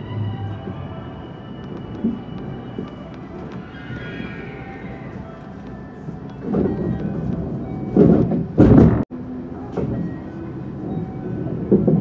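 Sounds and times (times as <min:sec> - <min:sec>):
train cabin low hum: 0:00.0 - 0:12.0
loud bumps: 0:07.9 - 0:09.1.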